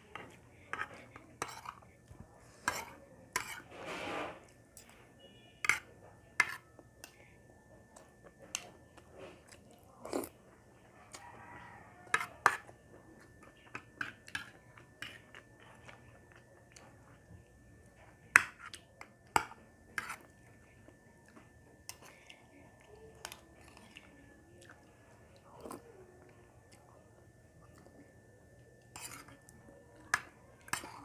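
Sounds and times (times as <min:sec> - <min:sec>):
person chewing: 0:09.0 - 0:10.4.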